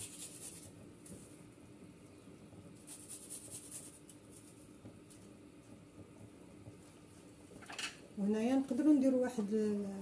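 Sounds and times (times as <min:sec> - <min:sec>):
garlic rasping on metal grater: 0:00.0 - 0:00.7, 0:02.8 - 0:04.5.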